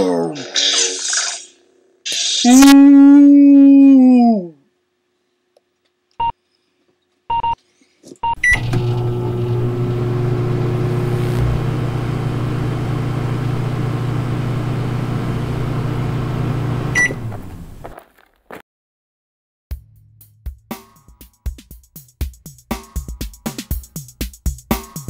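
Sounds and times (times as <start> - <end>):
microwave keypad beeps: 8.2 - 8.8, 16.9 - 17.2
microwave running hum: 8.2 - 17.9
microwave click: 8.4 - 17.4.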